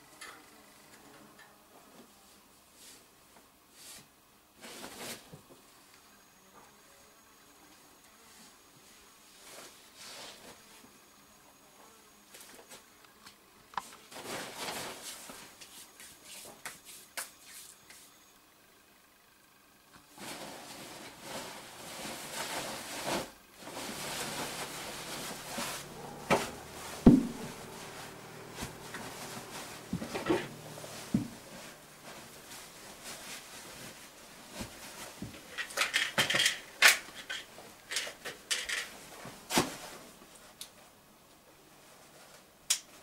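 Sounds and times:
clothing rustling: 20.2 - 35.6.

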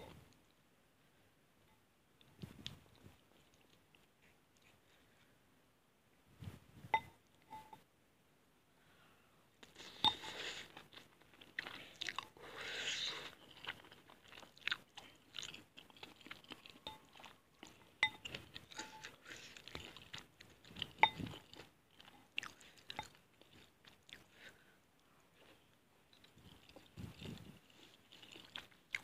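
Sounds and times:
chewing and slurping noodles: 9.6 - 24.6, 25.4 - 29.0.

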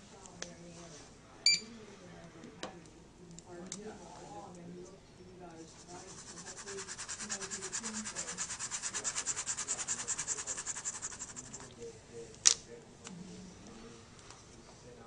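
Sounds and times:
pen scribbling on paper: 5.8 - 11.7.

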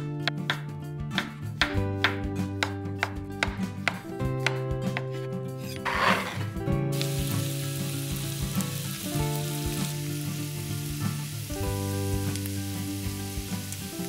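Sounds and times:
background music: 0.0 - 14.0
spatula stirring and scraping: 5.8 - 6.5
onion sizzling in a pan: 6.9 - 14.0.

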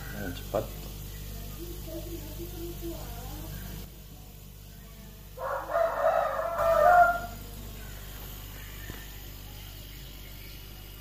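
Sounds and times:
low hum of air compressor: 0.0 - 11.0
rooster crowing: 5.4 - 7.4.

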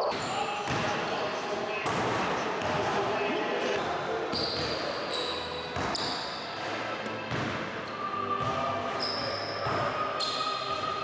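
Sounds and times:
sneakers squeaking on floor: 4.3 - 6.5, 7.2 - 11.0.

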